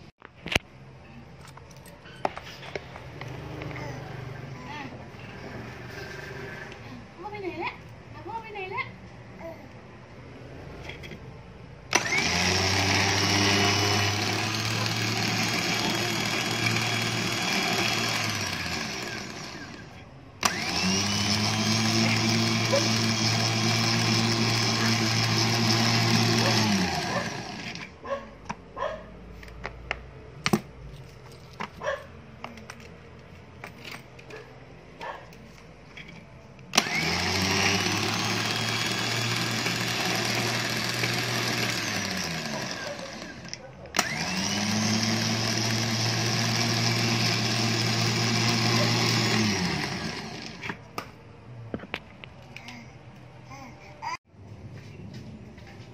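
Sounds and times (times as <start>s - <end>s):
electric winch motor whining: 11.9s - 27.9s, 36.7s - 50.7s.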